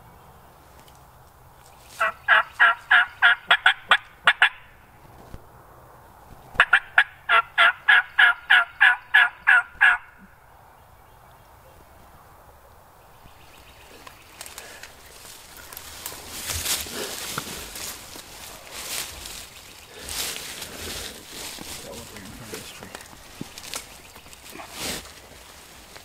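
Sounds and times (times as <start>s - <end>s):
turkey yelps: 2.0s - 4.7s, 6.6s - 10.2s.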